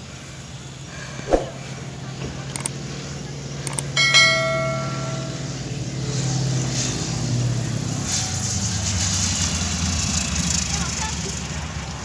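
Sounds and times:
propeller plane engine drone: 0.0s - 12.0s
bright bell chime: 4.0s - 5.7s.

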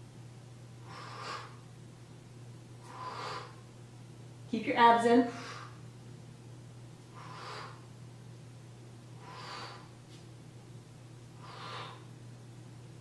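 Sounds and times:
low hum: 0.0s - 13.0s
woman breathing hard: 0.8s - 1.7s, 2.8s - 3.7s, 5.3s - 5.9s, 7.1s - 7.9s, 9.1s - 10.1s, 11.3s - 12.2s.

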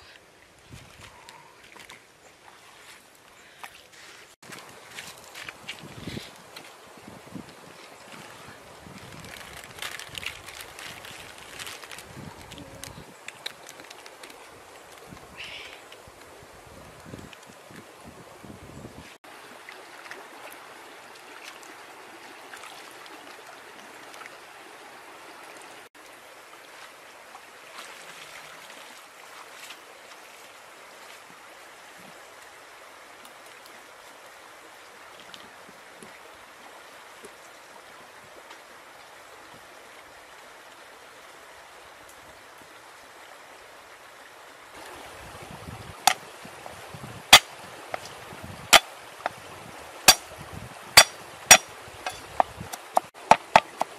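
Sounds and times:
stream trickling and gurgling: 0.0s - 53.9s
sharp knocks: 51.0s - 53.9s.

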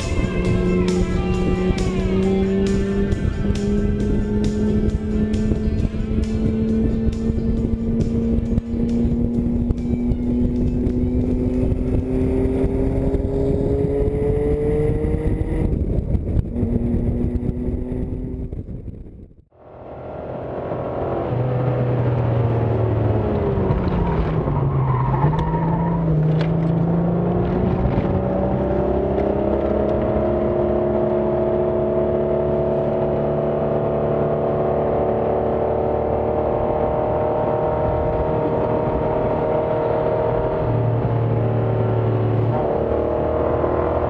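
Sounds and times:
car engine at speed: 0.0s - 44.0s.

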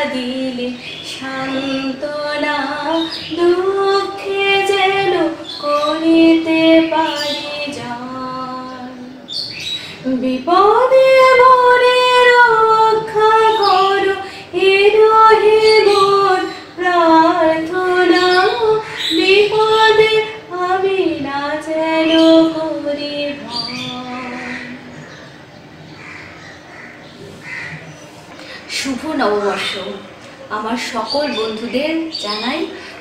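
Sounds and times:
woman singing unaccompanied: 0.0s - 25.0s.

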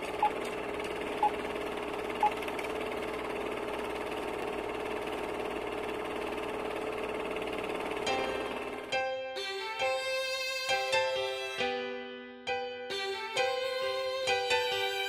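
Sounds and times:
film projector whirring: 0.0s - 10.0s.

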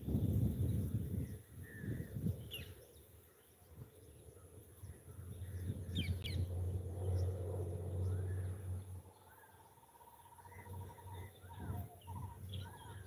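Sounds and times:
bird chirps: 0.2s - 13.0s
steady low drone: 4.8s - 13.0s.

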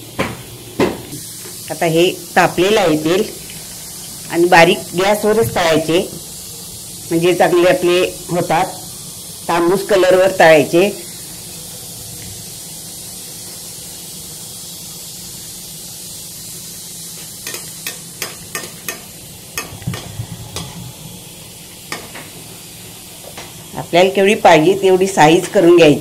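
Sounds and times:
dough balls sizzling in oil: 0.0s - 26.0s
metal spoon tapping pan: 17.4s - 20.0s.

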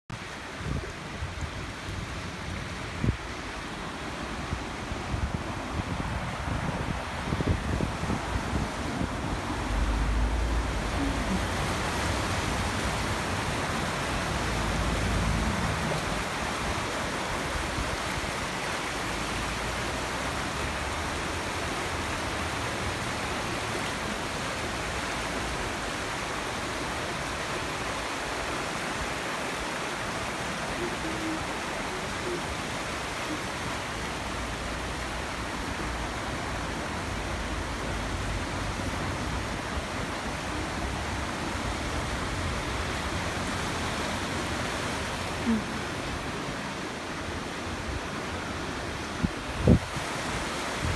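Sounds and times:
stream and waterfall rushing: 0.1s - 50.9s
wind buffeting microphone: 0.4s - 18.4s, 49.1s - 50.9s.

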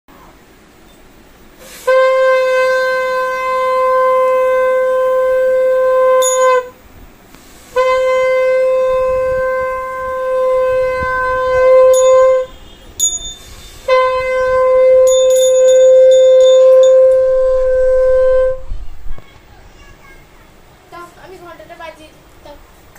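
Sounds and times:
conch shell blasts: 1.6s - 6.8s, 7.7s - 18.7s.

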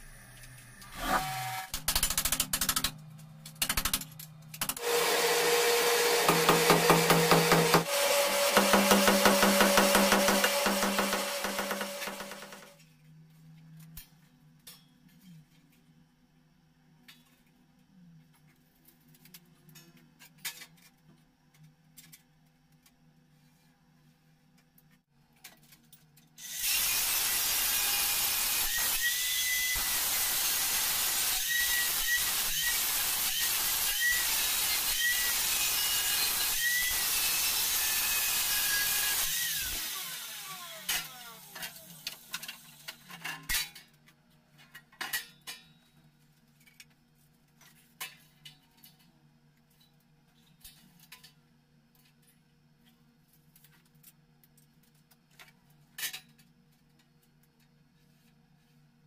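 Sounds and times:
angle grinder cutting steel: 4.8s - 12.7s, 26.4s - 42.0s.

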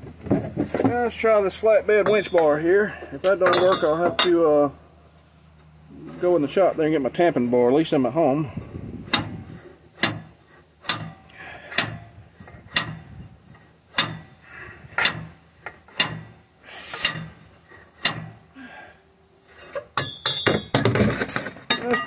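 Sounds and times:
metallic clatter: 3.3s - 4.5s, 8.6s - 18.5s, 19.5s - 22.0s
steel bar striking metal: 13.9s - 14.3s, 15.0s - 16.4s, 17.0s - 17.4s, 20.0s - 20.8s.

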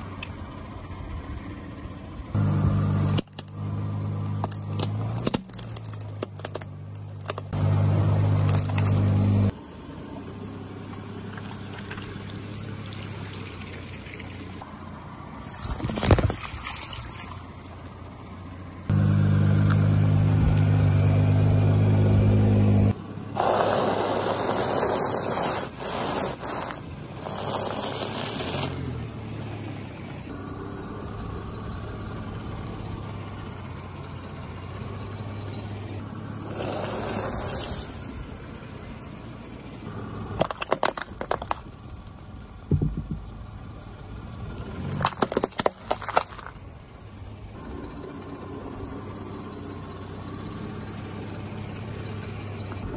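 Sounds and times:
car engine humming: 0.0s - 16.2s, 16.8s - 52.9s
plastic eggs cracking: 4.2s - 7.5s, 40.4s - 42.1s, 44.9s - 46.7s
objects squashing and splattering: 44.9s - 46.6s.

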